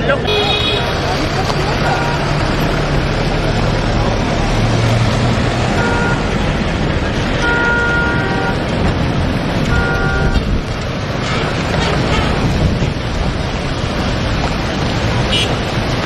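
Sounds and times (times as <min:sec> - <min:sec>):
steady rush of noise: 0:00.0 - 0:16.0
vehicle engines moving off: 0:00.0 - 0:16.0
vehicle horn: 0:00.3 - 0:01.0, 0:05.7 - 0:06.3, 0:07.4 - 0:08.7, 0:09.7 - 0:10.5, 0:11.2 - 0:12.6, 0:15.3 - 0:15.7.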